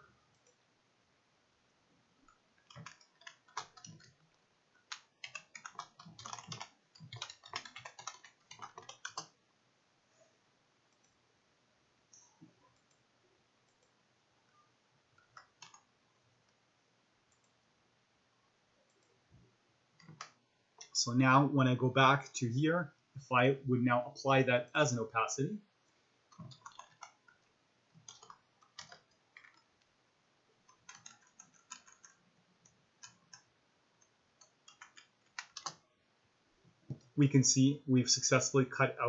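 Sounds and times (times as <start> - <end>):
computer keyboard typing: 2.3 - 9.4, 15.2 - 15.9, 20.0 - 21.0, 26.3 - 29.7, 30.6 - 35.8.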